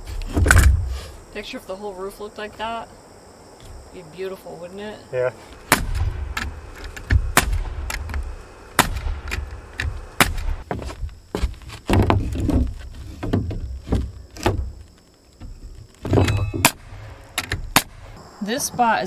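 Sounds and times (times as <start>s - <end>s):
wooden boards knocking: 8.8s - 14.8s, 15.4s - 16.8s.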